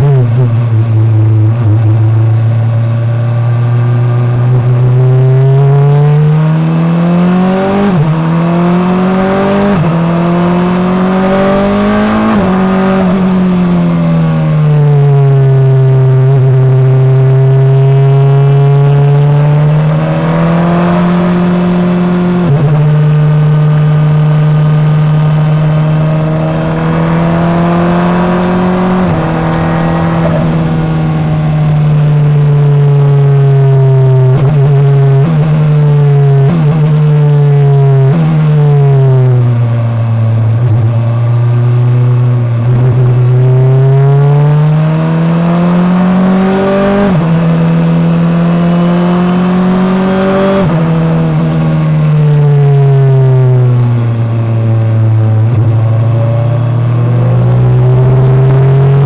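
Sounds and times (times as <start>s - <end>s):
racing car engine: 0.0s - 59.0s
quick gear upshifts: 17.6s - 37.0s.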